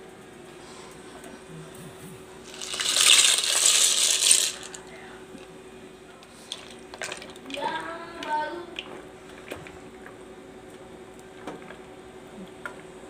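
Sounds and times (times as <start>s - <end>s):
broth simmering: 1.6s - 7.7s
dry pasta clattering into pot: 2.5s - 4.8s.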